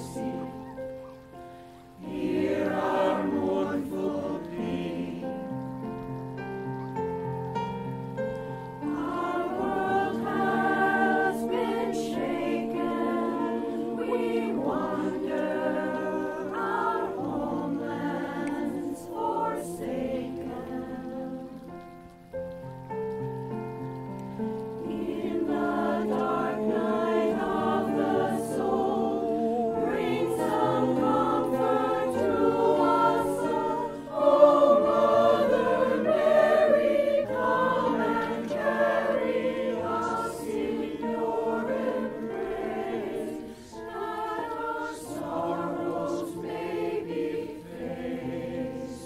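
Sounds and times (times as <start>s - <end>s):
mixed choir singing: 0.0s - 6.4s, 8.2s - 22.1s, 24.6s - 49.0s.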